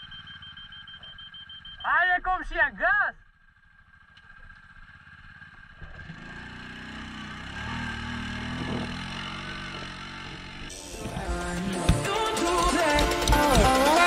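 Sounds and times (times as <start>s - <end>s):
atv engine under throttle: 3.2s - 14.0s.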